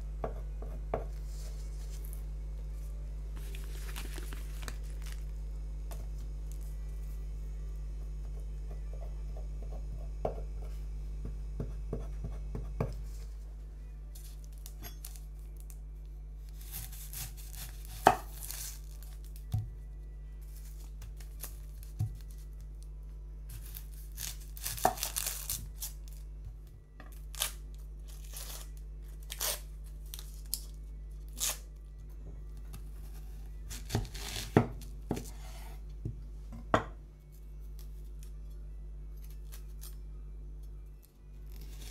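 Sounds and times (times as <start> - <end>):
onion skin tearing and crinkling: 3.4 - 5.4, 16.5 - 19.5, 20.5 - 22.8, 23.5 - 26.3, 27.1 - 31.7, 33.7 - 34.9, 41.4 - 41.9.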